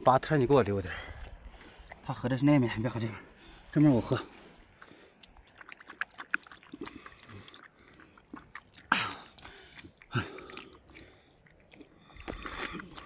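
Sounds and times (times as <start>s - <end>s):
wet lapping clicks: 0.1s - 13.0s
loud slurps: 3.6s - 13.0s.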